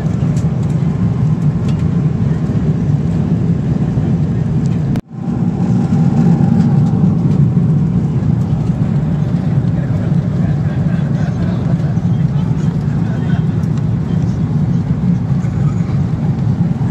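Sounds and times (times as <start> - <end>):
airliner cabin rumble: 0.0 - 16.9.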